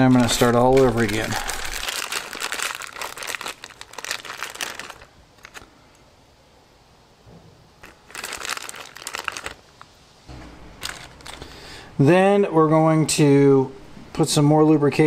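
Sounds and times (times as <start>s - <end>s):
plastic bag crinkling: 0.0s - 5.7s, 7.8s - 9.9s, 10.8s - 11.7s.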